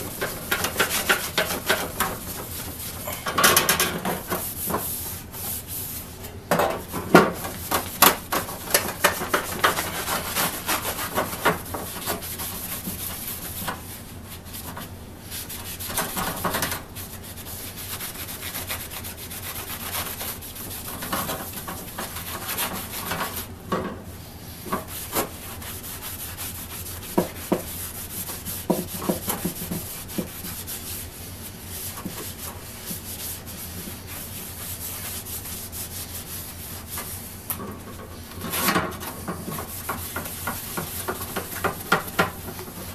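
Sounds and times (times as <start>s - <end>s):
rag wiping wooden handle: 0.1s - 3.2s.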